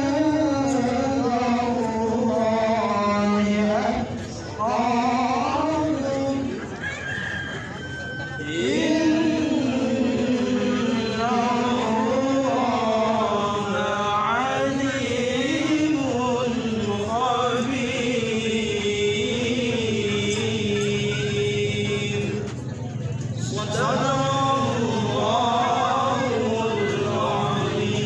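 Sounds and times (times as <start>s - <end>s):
men reciting melodically into microphones: 0.0s - 6.8s, 8.4s - 28.0s.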